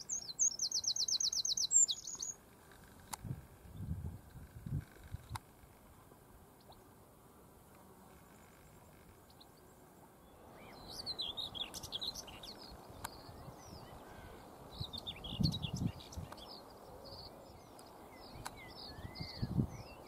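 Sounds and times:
bird singing fast jumbled phrases: 0.0 - 3.1, 10.3 - 20.0.

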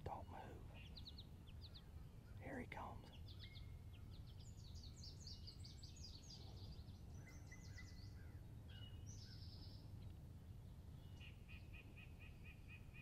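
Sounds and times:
faint low background rumble: 0.0 - 13.0
songbirds chirping: 0.0 - 13.0.

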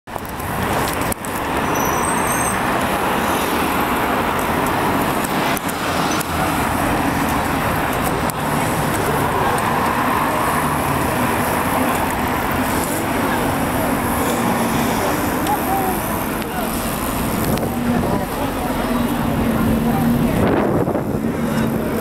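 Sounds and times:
road traffic noise: 0.1 - 22.0
cars driving past: 0.2 - 22.0.

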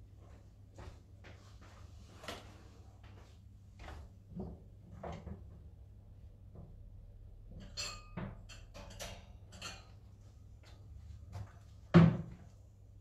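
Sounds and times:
dishes and utensils clattering: 7.5 - 10.1.

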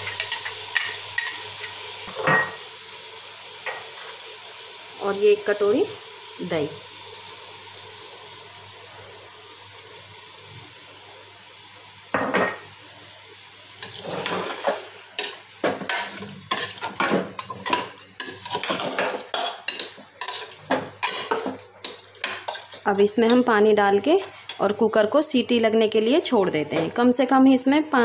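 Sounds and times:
steady sizzle: 0.0 - 28.0
metal spoon scraping a pot: 13.8 - 22.8.

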